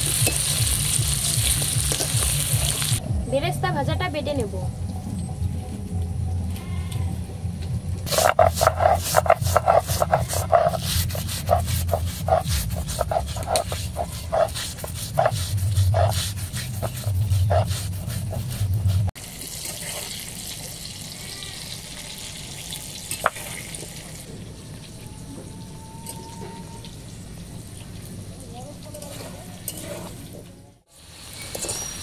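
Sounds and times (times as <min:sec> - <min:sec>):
stone scraping: 0:08.1 - 0:19.1
stone roller grinding on slab: 0:08.1 - 0:20.2.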